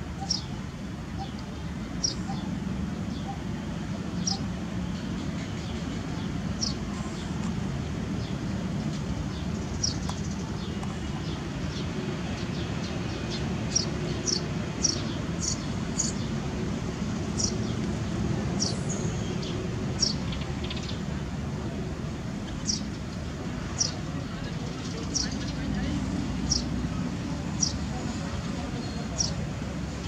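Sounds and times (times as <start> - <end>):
small bird chirping: 9.3 - 11.4.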